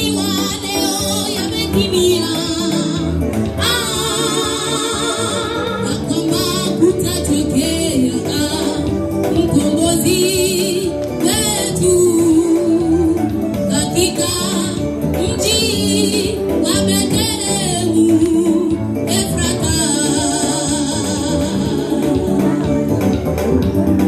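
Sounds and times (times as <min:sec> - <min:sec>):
instrumental accompaniment: 0:00.0 - 0:24.0
women's choir singing gospel: 0:01.4 - 0:10.7.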